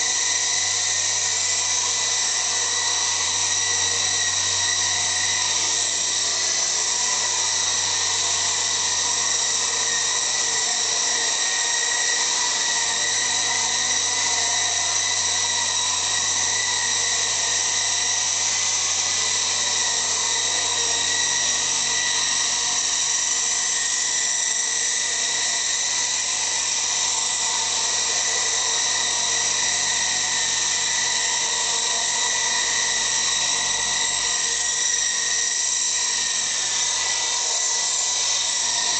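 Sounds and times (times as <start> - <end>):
rc helicopter motor whine: 0.0 - 38.9.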